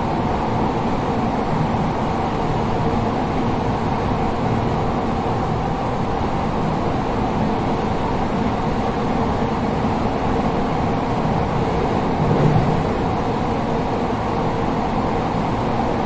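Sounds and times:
train wheels rumbling on rail: 10.2s - 15.9s.

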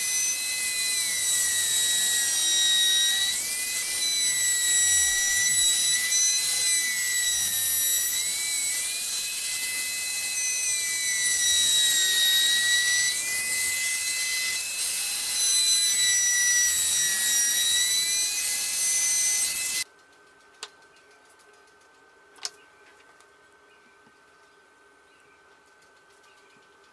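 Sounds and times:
trim router whining: 0.0s - 19.9s.

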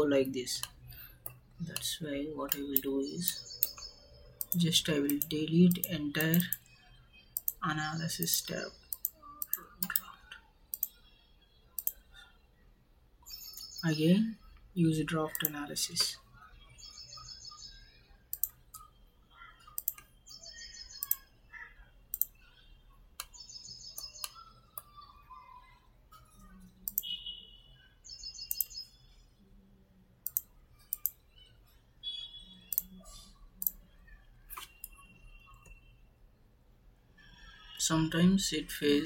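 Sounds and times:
birds chirping: 0.0s - 36.1s
computer mouse clicking: 2.5s - 7.6s, 8.2s - 10.1s, 10.7s - 11.0s, 11.8s - 12.0s, 15.3s - 15.6s, 18.3s - 18.9s, 19.6s - 20.1s, 21.0s - 21.3s, 22.1s - 22.5s, 26.4s - 27.1s, 28.5s - 28.8s, 30.2s - 31.2s, 32.7s - 33.8s, 34.5s - 35.0s.

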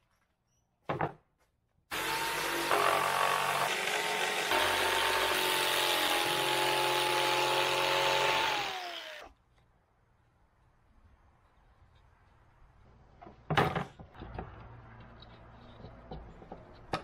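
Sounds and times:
jigsaw cutting plywood: 1.9s - 9.3s.

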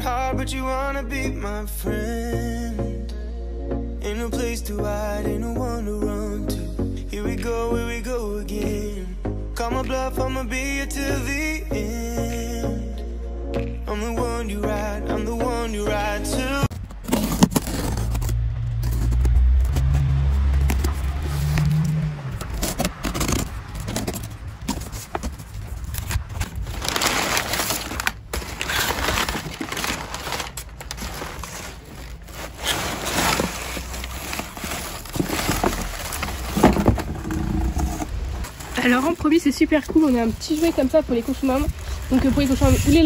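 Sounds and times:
motorbike engine droning: 16.7s - 25.0s
cardboard box tearing: 16.7s - 39.2s
packing paper rustling: 16.7s - 43.0s.

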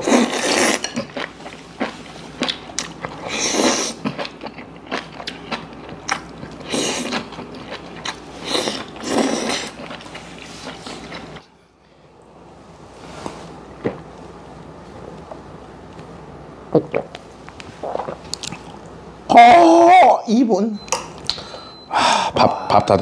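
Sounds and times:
person slurping food: 0.0s - 1.2s, 3.1s - 4.1s, 8.4s - 9.9s, 17.8s - 18.2s
chewing: 0.1s - 11.5s, 17.8s - 18.9s.

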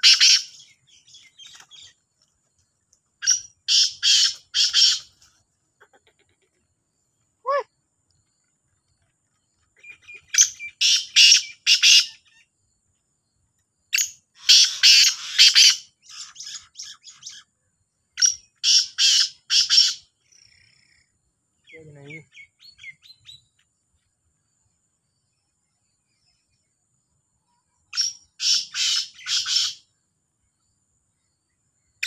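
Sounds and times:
francolins calling harshly: 0.0s - 2.0s, 3.2s - 5.3s, 9.8s - 12.4s, 14.0s - 17.5s, 18.2s - 21.0s, 27.9s - 29.9s
faint bird chirps: 0.0s - 32.0s.

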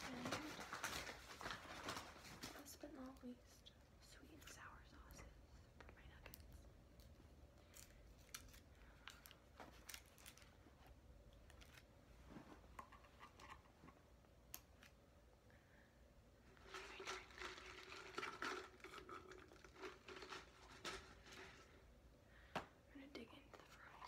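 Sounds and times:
paper and plastic crinkling: 0.0s - 3.2s, 7.6s - 10.8s, 16.6s - 21.7s.

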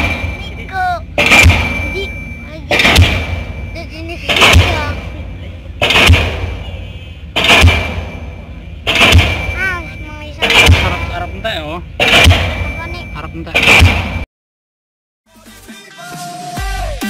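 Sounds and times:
pile hammer heavy bangs: 0.0s - 14.2s.

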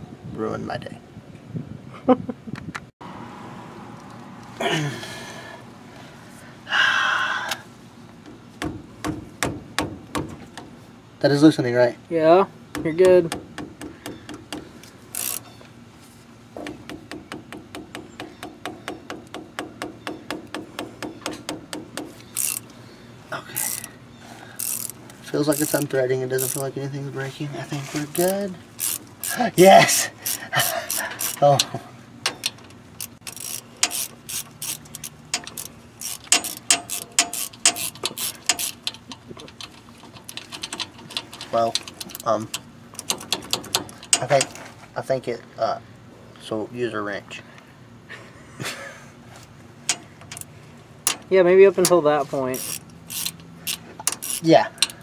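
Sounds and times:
ratchet clicking: 12.8s - 15.5s, 16.9s - 22.7s, 23.6s - 23.9s, 24.6s - 26.7s, 28.1s - 44.6s, 49.8s - 55.0s.

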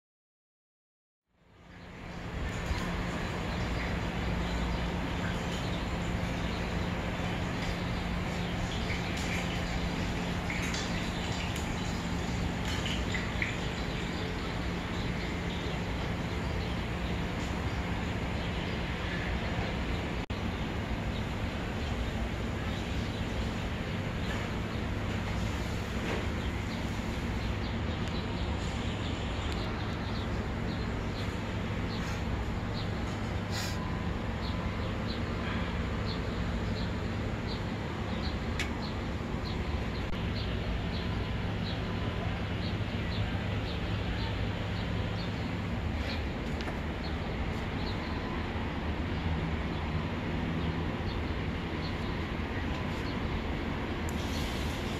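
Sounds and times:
low background hum: 1.4s - 54.9s
even hiss: 54.1s - 54.9s.

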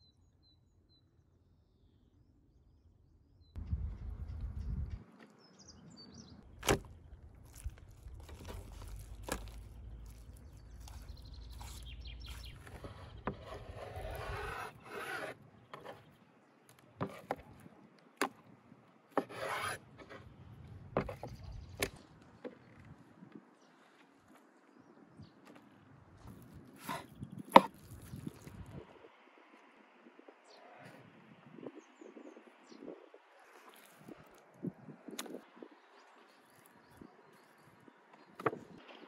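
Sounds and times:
knife slicing scrapes: 7.5s - 16.1s, 17.0s - 17.6s, 19.2s - 20.3s, 26.8s - 28.4s.

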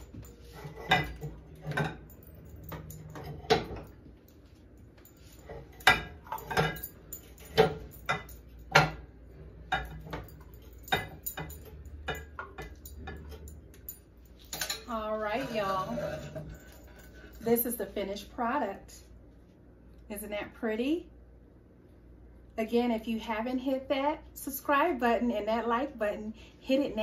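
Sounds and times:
metal spoons clinking against bowls: 0.0s - 4.0s, 5.0s - 17.4s.

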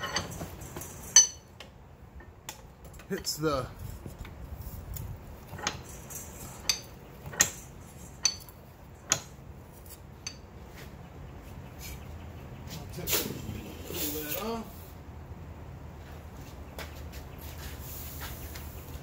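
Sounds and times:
metal tongs clinking against vise: 0.0s - 1.5s, 8.2s - 9.2s.

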